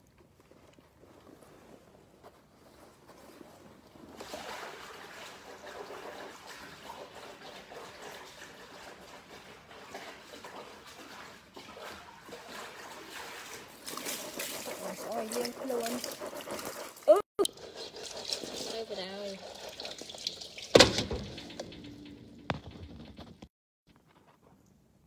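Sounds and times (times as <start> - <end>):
running water: 4.1 - 22.6.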